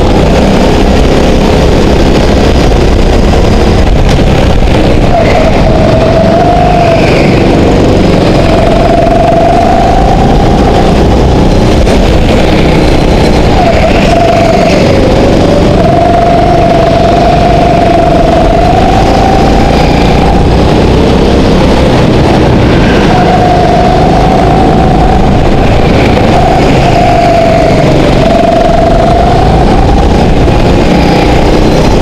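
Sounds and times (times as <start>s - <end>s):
go-kart engine revving: 0.0s - 32.0s.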